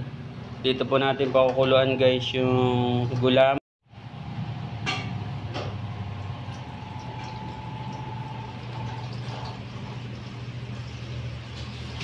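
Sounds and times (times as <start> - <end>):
water pouring into metal pot: 6.3 - 12.0.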